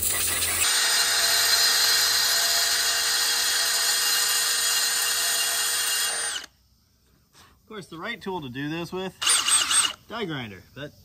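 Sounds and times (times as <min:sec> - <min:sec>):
drill bit grinding metal: 0:00.0 - 0:06.5, 0:09.2 - 0:10.0
cordless drill motor whine: 0:00.2 - 0:06.5, 0:09.2 - 0:10.0.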